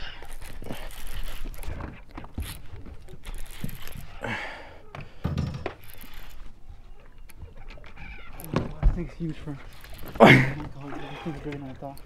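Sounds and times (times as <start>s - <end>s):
fishing reel clicking: 0.0s - 1.8s, 2.4s - 4.2s, 5.8s - 6.5s, 9.7s - 10.2s.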